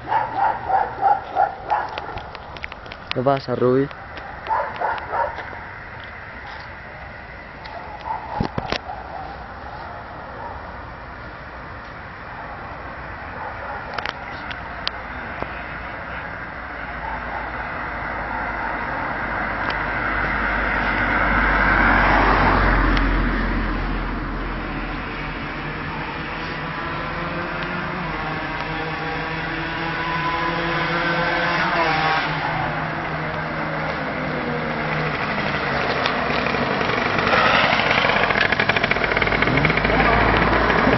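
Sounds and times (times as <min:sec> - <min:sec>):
vehicle passing at speed: 0:15.0 - 0:40.9
motorbike engine revving: 0:24.6 - 0:40.9.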